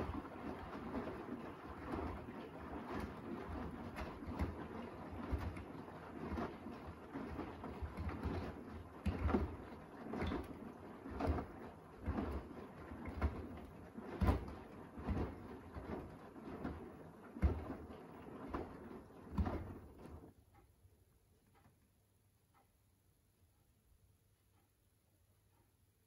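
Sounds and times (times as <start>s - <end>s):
washing machine laundry splashing: 0.0s - 20.4s.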